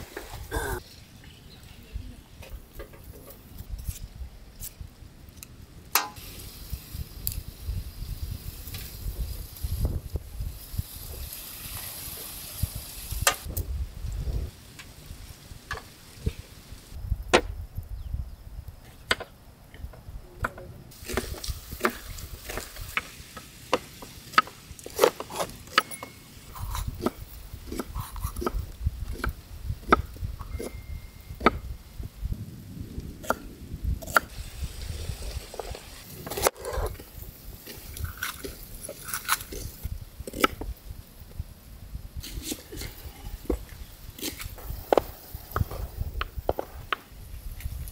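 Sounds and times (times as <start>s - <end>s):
steady low rumble: 13.5s - 15.4s.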